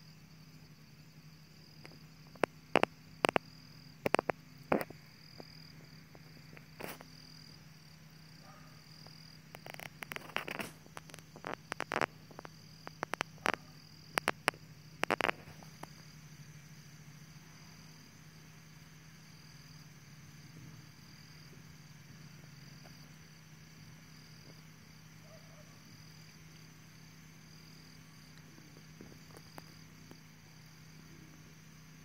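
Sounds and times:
faint low hum: 0:00.0 - 0:32.0
insects trilling: 0:00.0 - 0:32.0
sharp clicks and taps: 0:01.8 - 0:03.4, 0:09.6 - 0:13.6, 0:14.2 - 0:15.5.

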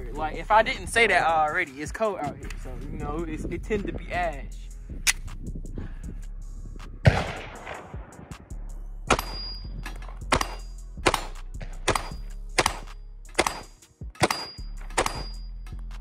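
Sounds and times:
pistol shots: 0:07.0 - 0:08.2, 0:09.1 - 0:09.6, 0:10.3 - 0:15.4.

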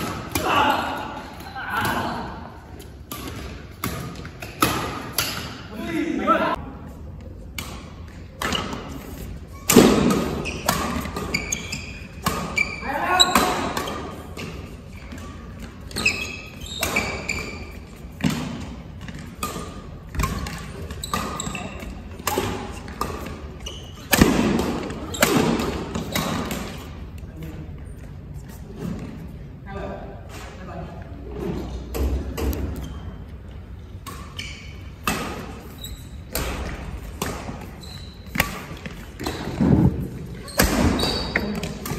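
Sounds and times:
rackets hitting shuttlecock: 0:03.0 - 0:05.6, 0:07.5 - 0:26.8, 0:33.9 - 0:41.9
shoes squeaking on court floor: 0:07.9 - 0:27.0, 0:31.4 - 0:41.9.

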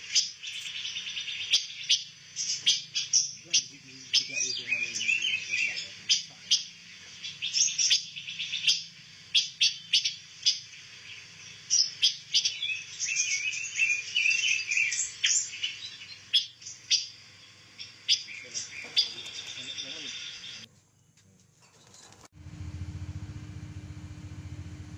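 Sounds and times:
songbirds chirping: 0:00.0 - 0:21.7.

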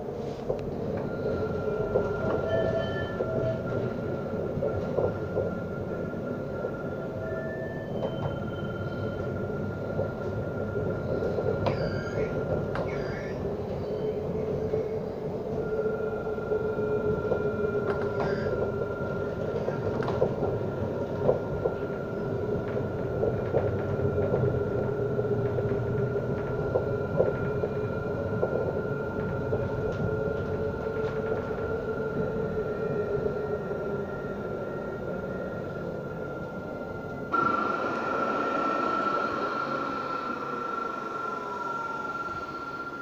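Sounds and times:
tram wheels rumbling on rail: 0:00.0 - 0:43.0
steady whine: 0:21.8 - 0:43.0.

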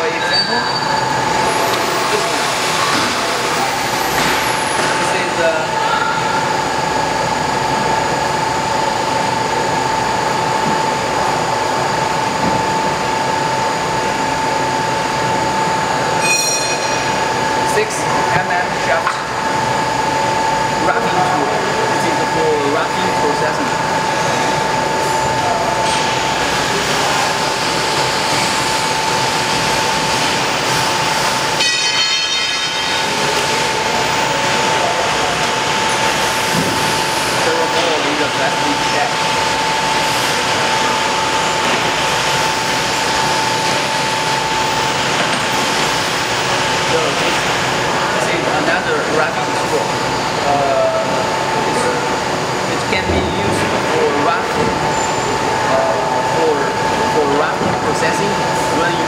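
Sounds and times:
high-pitched whine: 0:00.0 - 0:59.0
machinery noise: 0:00.0 - 0:59.0
steady mid-pitched hum: 0:00.0 - 0:59.0.

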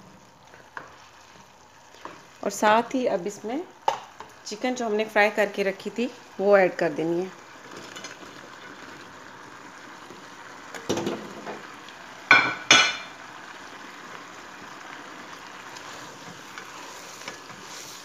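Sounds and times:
sauce simmering: 0:00.0 - 0:18.0
plate knocking against pan: 0:12.3 - 0:13.1.

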